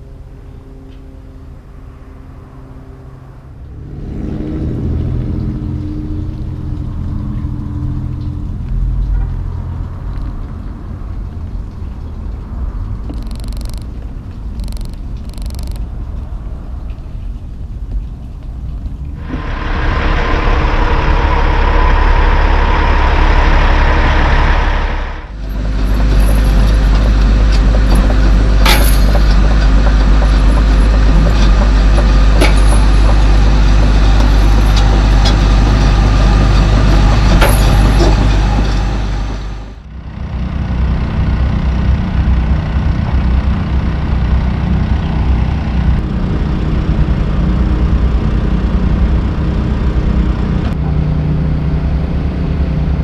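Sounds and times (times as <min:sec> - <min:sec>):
diesel truck engines running: 0:00.0 - 0:53.0
sharp clicks: 0:13.1 - 0:15.9.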